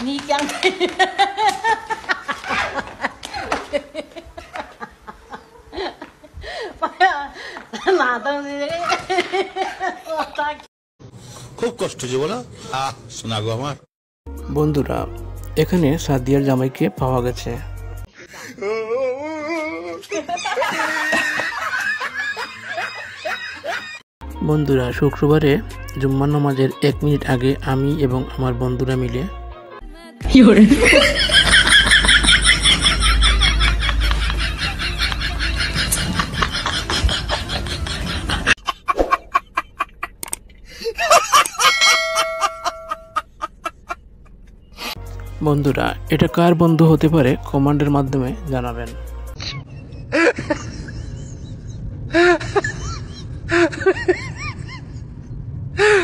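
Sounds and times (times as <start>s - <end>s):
people laughing: 0.4s - 10.6s, 18.7s - 24.0s, 30.4s - 40.2s, 40.8s - 44.5s, 49.4s - 55.2s
high-pitched wavering laugh: 30.7s - 44.9s, 49.4s - 56.0s.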